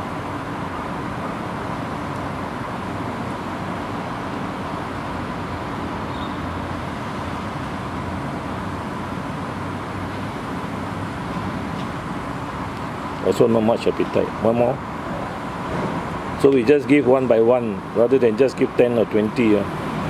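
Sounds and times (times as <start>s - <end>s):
faint steady high tone: 6.1s - 6.5s.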